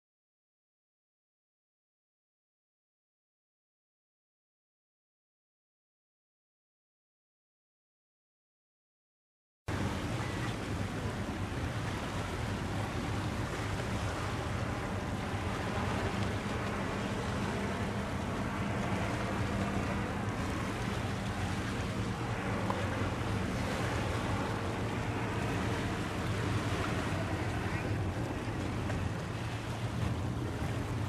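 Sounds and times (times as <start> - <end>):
boat engine droning: 9.7 - 31.0
wind and water noise: 9.7 - 31.0.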